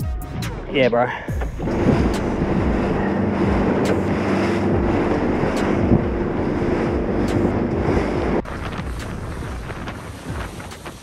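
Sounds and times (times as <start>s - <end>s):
boat engine drone: 1.2s - 11.0s
spray rushing along hull: 1.3s - 11.0s
wind buffeting microphone: 1.4s - 11.0s.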